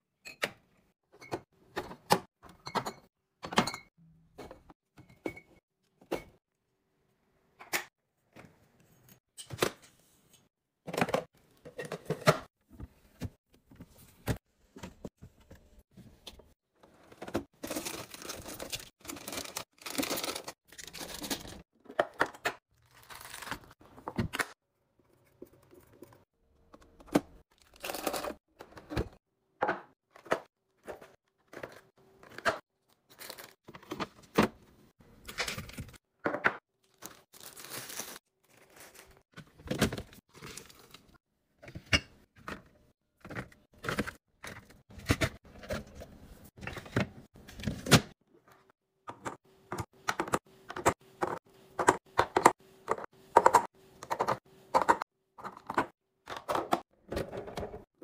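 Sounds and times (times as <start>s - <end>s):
plastic packaging crinkling: 36.8s - 39.2s.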